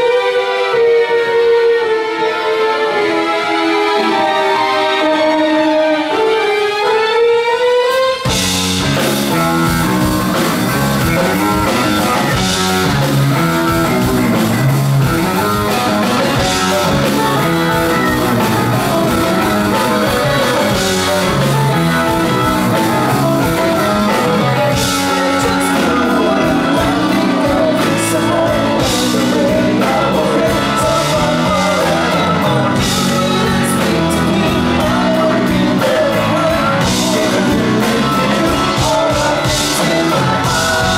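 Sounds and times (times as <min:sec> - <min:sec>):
progressive rock band playing: 0:00.0 - 0:40.9
person singing: 0:09.3 - 0:40.9.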